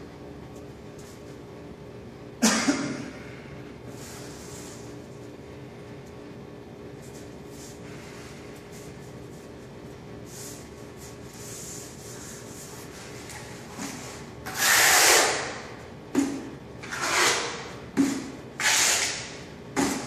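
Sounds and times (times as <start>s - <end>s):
tile scraping on floor: 16.8s - 19.2s.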